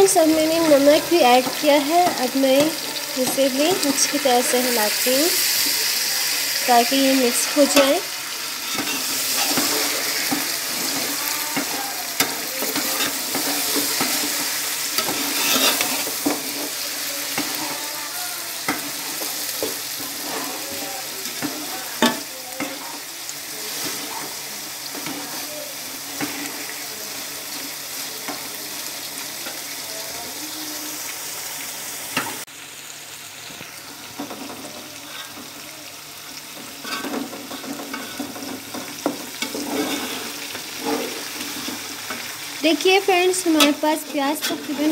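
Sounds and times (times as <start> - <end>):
meat sizzling in a pot: 0.0 - 44.9
metal spoon scraping a pot: 7.3 - 17.8, 39.0 - 42.3.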